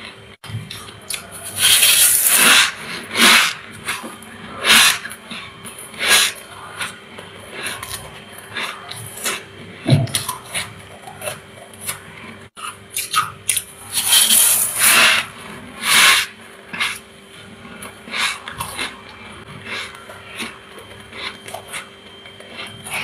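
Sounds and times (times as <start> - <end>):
metal spoon scraping frost: 12.6 - 17.0.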